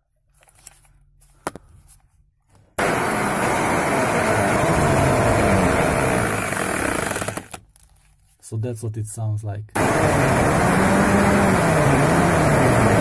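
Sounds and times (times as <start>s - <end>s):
hammer drill grinding into concrete: 2.8s - 7.6s, 9.8s - 13.0s.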